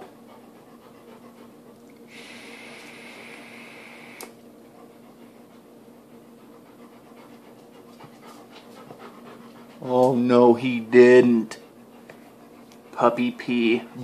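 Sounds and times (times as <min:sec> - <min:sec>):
steady low hum: 0:00.0 - 0:14.0
soft exhale: 0:02.1 - 0:04.2
vape coil hissing sizzle: 0:02.1 - 0:04.3
click: 0:04.2 - 0:04.4.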